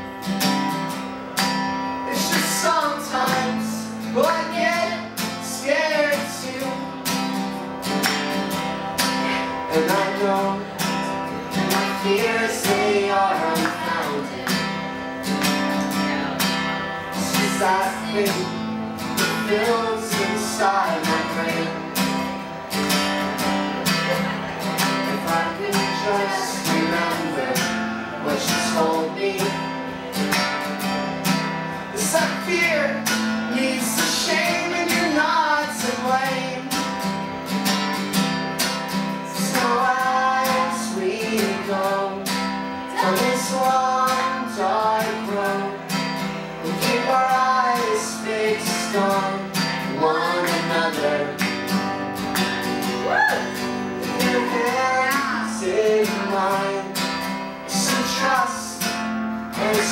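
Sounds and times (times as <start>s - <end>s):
acoustic guitar strumming: 0.0s - 59.9s
person singing: 9.0s - 14.9s, 17.2s - 18.6s, 19.2s - 22.2s, 23.8s - 29.8s, 39.3s - 45.9s, 46.6s - 51.5s, 53.0s - 57.0s, 59.6s - 59.9s.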